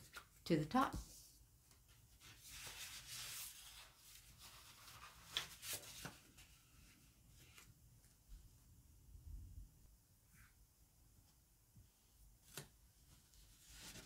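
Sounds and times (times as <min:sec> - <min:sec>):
paper rustling: 0:01.7 - 0:07.7, 0:12.4 - 0:14.0.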